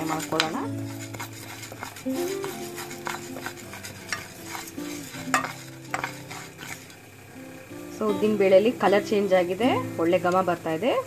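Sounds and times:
dry lentils rattling in a pan: 0:00.0 - 0:07.0
spatula scraping a pan: 0:00.0 - 0:07.0.

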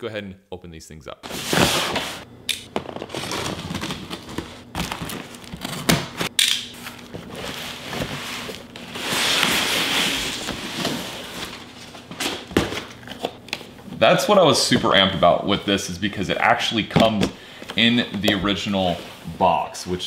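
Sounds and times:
cardboard scraping rustle: 0:01.3 - 0:02.2, 0:02.9 - 0:12.2.

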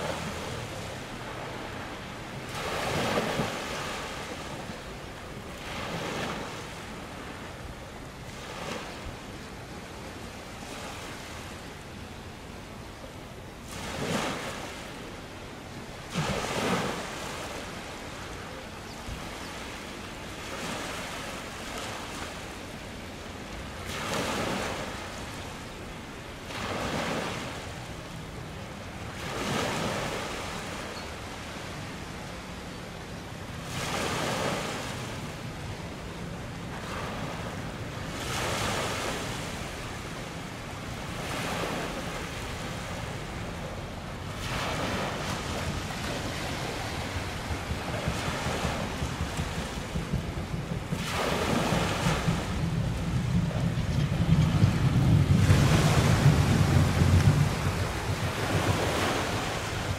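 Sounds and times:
sea waves splashing: 0:00.0 - 0:59.9
wind on microphone: 0:31.8 - 0:59.9.

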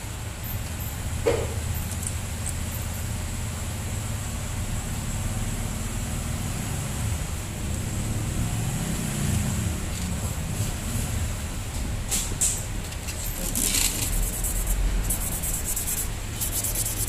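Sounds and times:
metal parts clicking: 0:01.7 - 0:02.8, 0:12.4 - 0:14.4.

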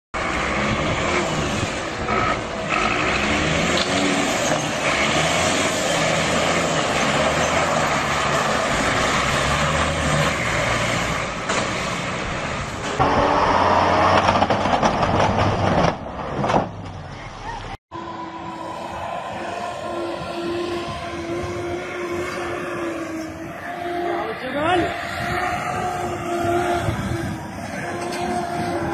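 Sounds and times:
louder engine sound: 0:00.2 - 0:15.4, 0:17.9 - 0:28.9
vehicle engines running: 0:00.2 - 0:28.9.

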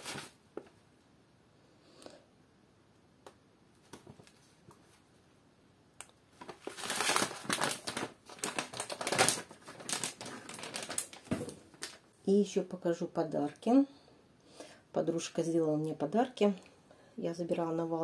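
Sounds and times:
foil pouch crinkling: 0:06.4 - 0:12.0.

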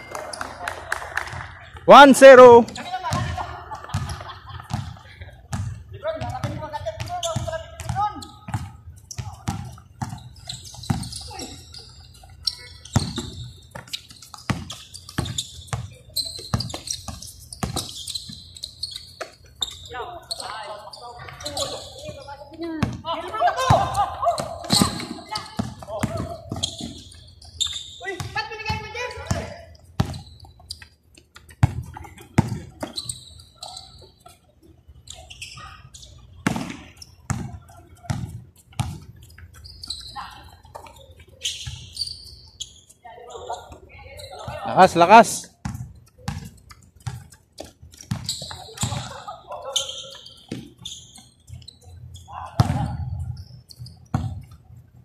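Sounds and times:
basketball bouncing on court: 0:02.6 - 0:11.6, 0:12.8 - 0:20.6, 0:21.2 - 0:30.6, 0:31.3 - 0:33.2, 0:36.4 - 0:40.0, 0:45.6 - 0:51.7, 0:52.4 - 0:54.6.

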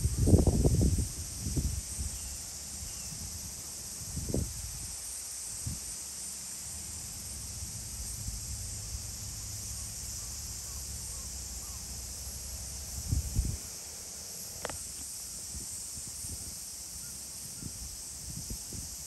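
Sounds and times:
wind rumble on microphone: 0:00.0 - 0:06.0, 0:12.5 - 0:19.0
insect chorus buzzing: 0:00.0 - 0:19.0.

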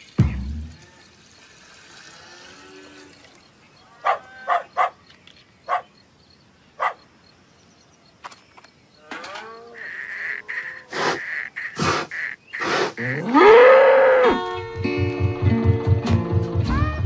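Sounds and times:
faint pitched sounds: 0:09.0 - 0:14.4.

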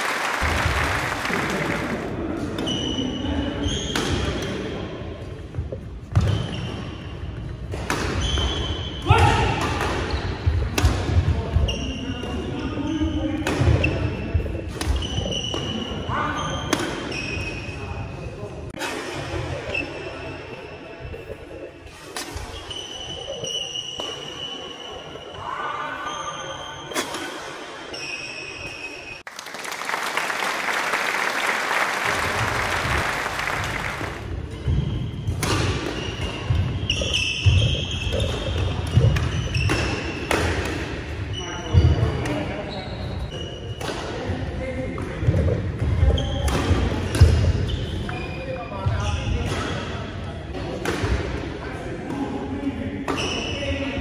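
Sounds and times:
rackets hitting shuttlecock: 0:07.7 - 0:08.7, 0:34.2 - 0:40.9.

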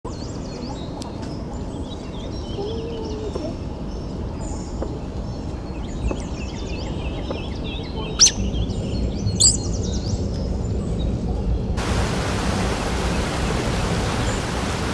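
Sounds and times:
birds chirping and trilling: 0:00.1 - 0:11.6
flowing water: 0:11.8 - 0:14.9.

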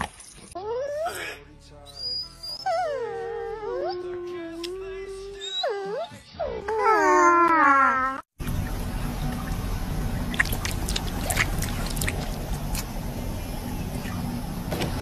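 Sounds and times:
water splashing and dripping: 0:08.4 - 0:12.9
steady low rumble: 0:08.4 - 0:15.0.

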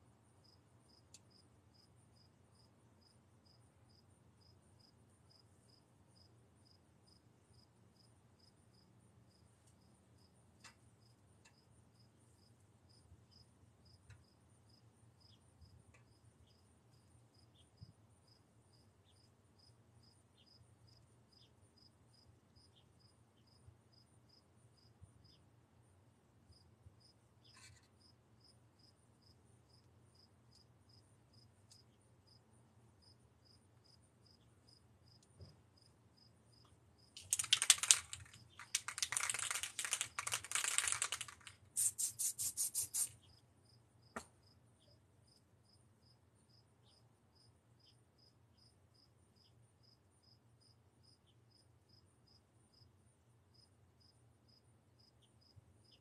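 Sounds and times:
insect chirping: 0:35.8 - 0:43.8
spray paint can hissing: 0:37.2 - 0:43.1.

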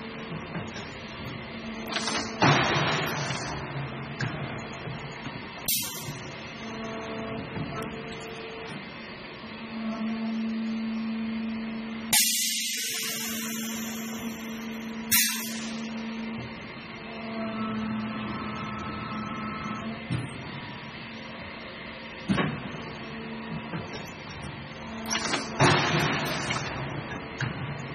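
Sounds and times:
molding machine humming: 0:03.4 - 0:22.2
air hissing: 0:15.1 - 0:15.8
machine clunks: 0:25.0 - 0:27.6.

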